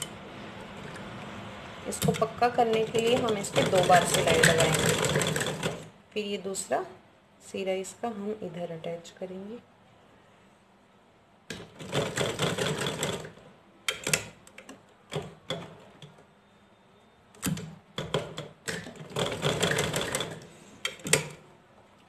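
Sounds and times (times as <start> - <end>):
sewing machine stitching clatter: 2.0 - 5.9, 11.5 - 13.4, 17.5 - 21.4.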